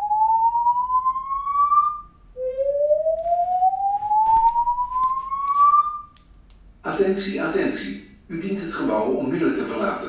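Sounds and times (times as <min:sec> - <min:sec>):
whooping evacuation alarm: 0:00.0 - 0:06.2.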